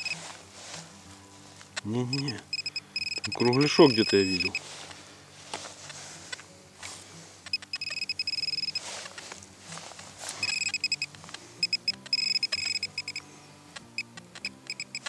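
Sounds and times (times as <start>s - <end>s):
metal detector probe beeping: 0.0s - 0.3s, 1.7s - 4.6s, 7.5s - 9.0s, 10.4s - 15.0s
dirt scraping: 0.0s - 2.4s, 3.4s - 12.7s.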